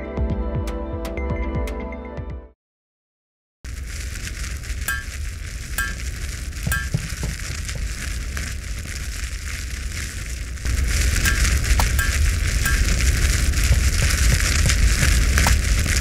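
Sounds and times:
fire hissing: 0:03.7 - 0:16.0
low rumble: 0:03.8 - 0:16.0.

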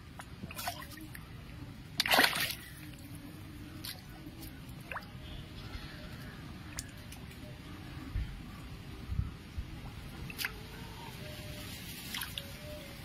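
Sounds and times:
water churning: 0:00.0 - 0:05.2
fish splashing: 0:00.1 - 0:03.1.

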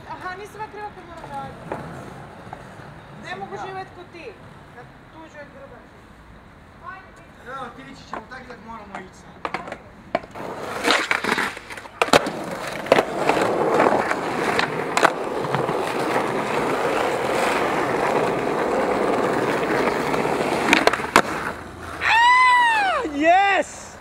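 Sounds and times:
skateboard wheels rolling on stone: 0:00.0 - 0:04.5, 0:07.7 - 0:23.7
skateboard clacks: 0:08.1 - 0:22.1.

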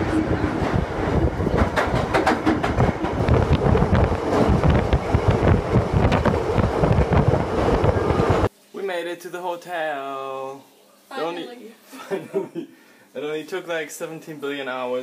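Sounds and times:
air rushing through window: 0:00.0 - 0:08.5
train rumbling and rattling: 0:00.0 - 0:08.5.

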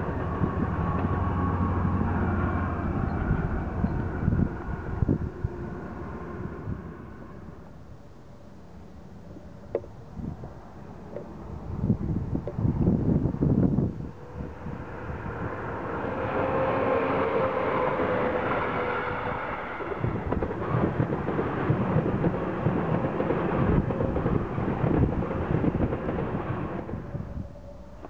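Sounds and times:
high-speed train rushing past: 0:00.0 - 0:08.0, 0:10.2 - 0:28.0
electric locomotive whine: 0:00.0 - 0:28.0
train wheels knocking on track: 0:19.7 - 0:26.9.

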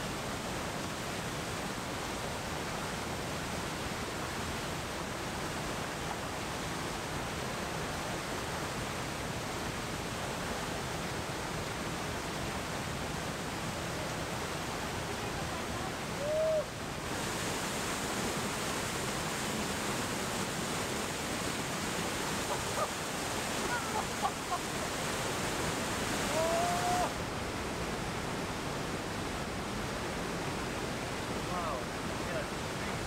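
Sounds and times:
mountain stream rushing over rock: 0:00.0 - 0:33.0.

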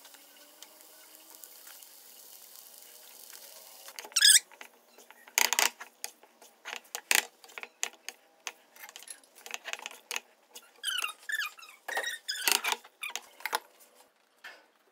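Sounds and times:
short squeaks: 0:04.1 - 0:05.4, 0:10.6 - 0:13.4.

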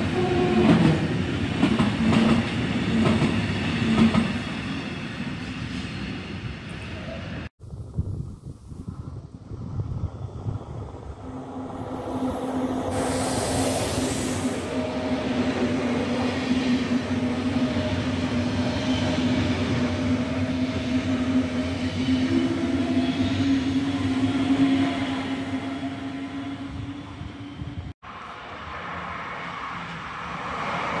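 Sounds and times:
train passing with rail rumble: 0:00.0 - 0:31.0
high hiss: 0:11.8 - 0:14.8.

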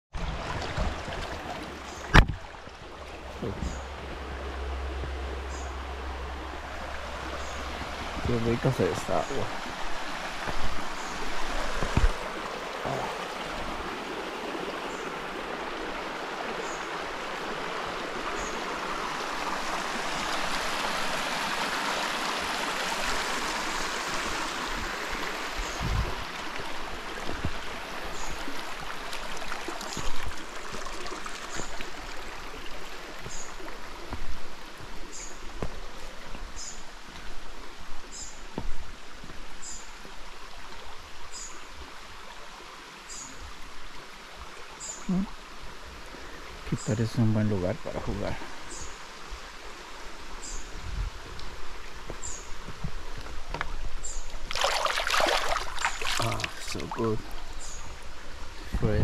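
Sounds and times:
creek splashing over rocks: 0:00.1 - 0:59.0.

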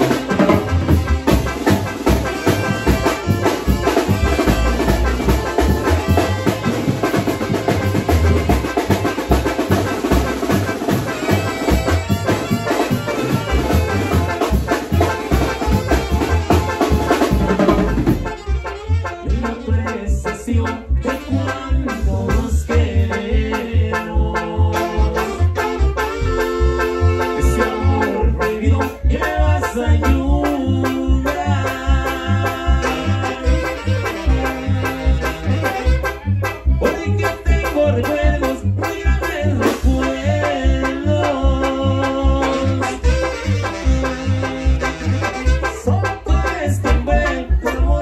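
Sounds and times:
driving drum beat: 0:00.0 - 0:18.6, 0:25.3 - 0:41.7
keyboard: 0:00.0 - 0:48.0
live band playing: 0:00.0 - 0:48.0
saxophones: 0:00.0 - 0:48.0.

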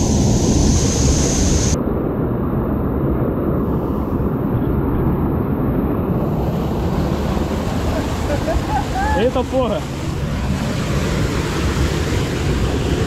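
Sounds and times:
river rapids rushing: 0:06.5 - 0:13.0.

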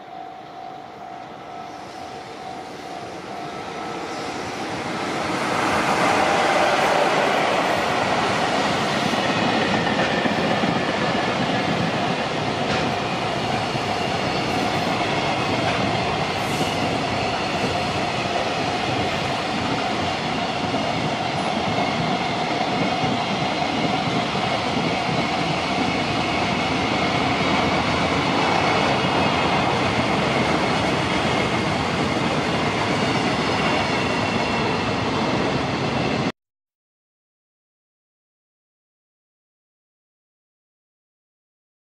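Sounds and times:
train wheels rumbling on track: 0:01.0 - 0:36.3.

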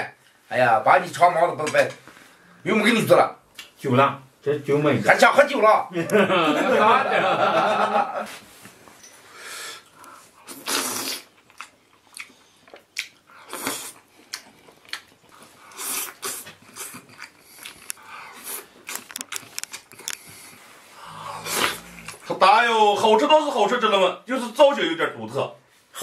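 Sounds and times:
men laughing: 0:06.0 - 0:08.4
slurping: 0:09.8 - 0:22.3
chewing and lip-smacking: 0:11.3 - 0:20.6.

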